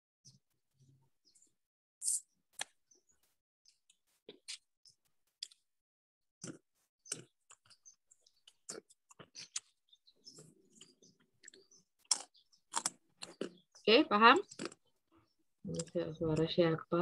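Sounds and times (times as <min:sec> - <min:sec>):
faint chewing and eating: 0:03.7 - 0:05.7, 0:06.4 - 0:16.6.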